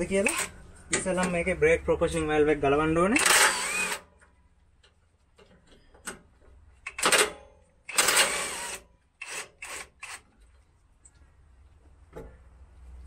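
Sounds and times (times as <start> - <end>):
power tool rattling bursts: 3.2 - 4.1, 6.9 - 10.2.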